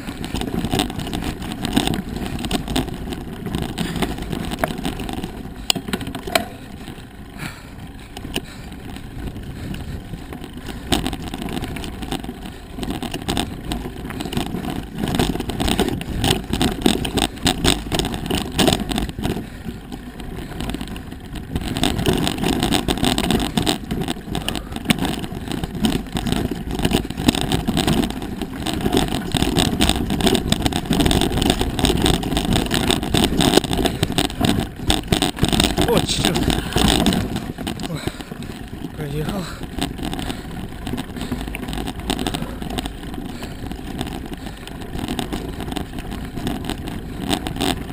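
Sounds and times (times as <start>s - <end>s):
bike clattering and rattling: 0.0s - 47.9s
bike tyres on gravel and stone: 0.0s - 47.9s
wind rumbling on microphone: 0.0s - 47.9s.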